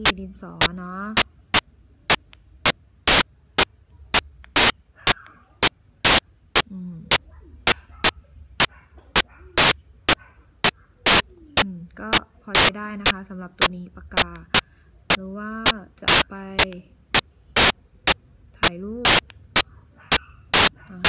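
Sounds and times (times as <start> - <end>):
sharp clicks: 0.0 - 6.7, 7.7 - 20.8
low steady hum: 0.0 - 21.0
faint voice murmuring: 4.9 - 5.7, 6.6 - 12.7.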